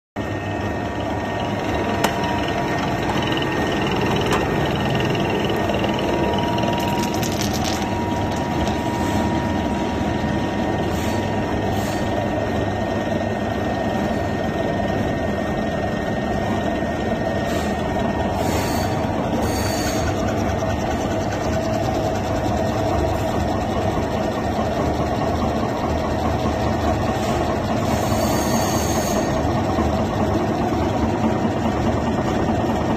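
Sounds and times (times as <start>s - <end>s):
potato machine grinding: 1.1s - 9.3s.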